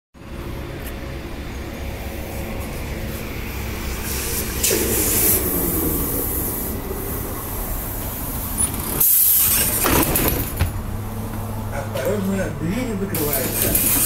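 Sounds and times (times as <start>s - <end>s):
trolleybus machinery: 0.1s - 14.0s
street noise: 0.2s - 14.0s
loud air hissing: 2.0s - 9.9s.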